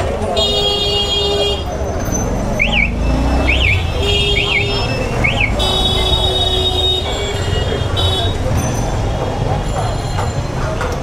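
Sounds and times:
rumble of engines: 0.0s - 11.0s
vehicle horns honking: 0.3s - 8.6s
engine revving: 2.1s - 7.1s
electronic alarm chirping: 2.6s - 5.6s.

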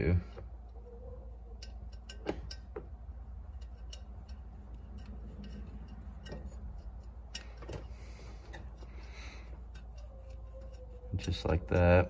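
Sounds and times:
steady low hum: 0.0s - 12.0s
metallic clicks of nut: 1.6s - 10.8s.

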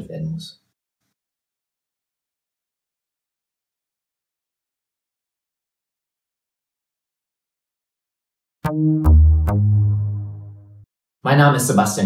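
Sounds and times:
deep bass note: 8.6s - 10.8s
sharp pitched electronic hits: 8.6s - 10.8s.

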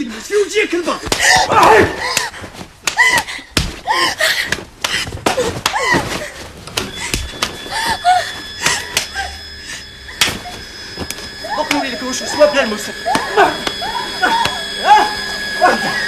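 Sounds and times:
slaps and thuds: 1.0s - 7.6s.

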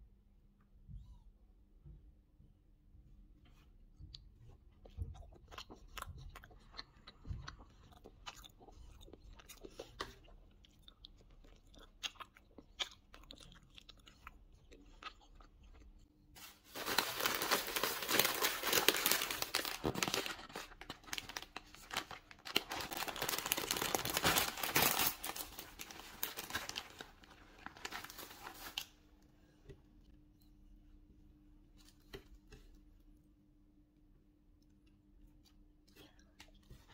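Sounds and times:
plastic bag rustling: 16.4s - 29.0s.

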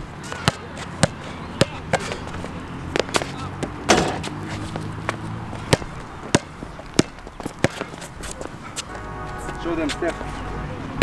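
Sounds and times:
basketball bouncing on hard court: 0.4s - 2.2s, 5.7s - 7.9s.

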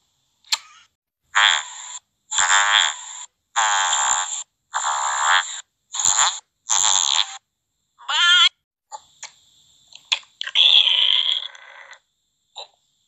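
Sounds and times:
buzzy croaking voice noises: 0.5s - 7.4s, 10.0s - 12.8s.

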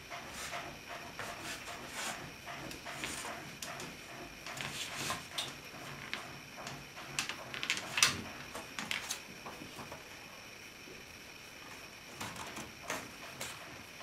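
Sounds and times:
wood scraping on wood and paper: 0.1s - 6.3s.

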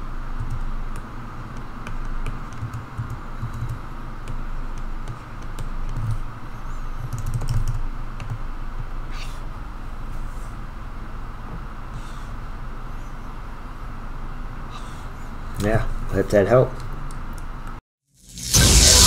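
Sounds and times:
low background hum: 0.0s - 17.8s.

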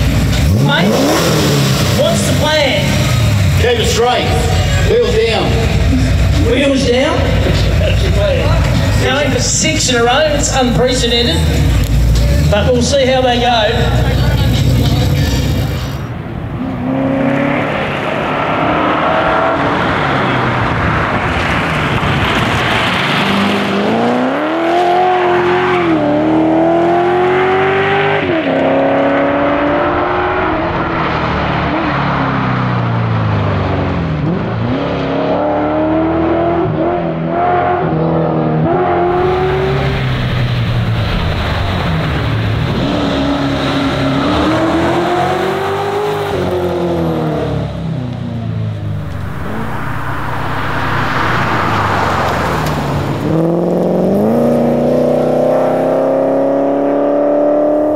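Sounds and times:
engine accelerating through gears: 0.0s - 3.6s.

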